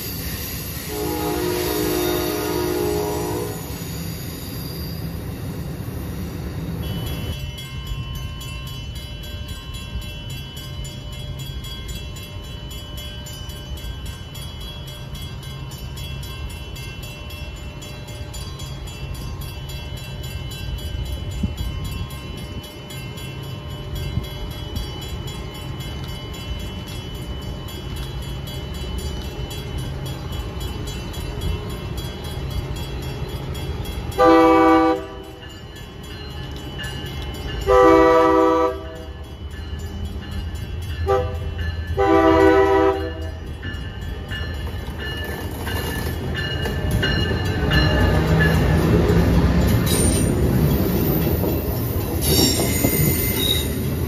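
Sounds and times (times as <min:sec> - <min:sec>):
train approaching rumble: 0:00.0 - 0:54.0
train horn blasts: 0:00.8 - 0:03.9, 0:34.2 - 0:35.4, 0:37.7 - 0:39.2, 0:41.0 - 0:43.4.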